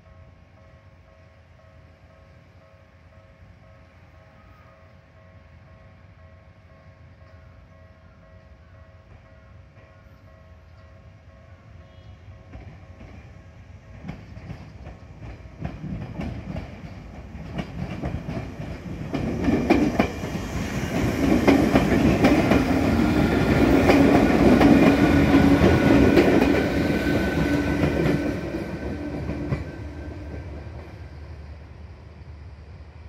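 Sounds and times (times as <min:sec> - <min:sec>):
train wheels clicking over rail joints: 0:12.5 - 0:31.2.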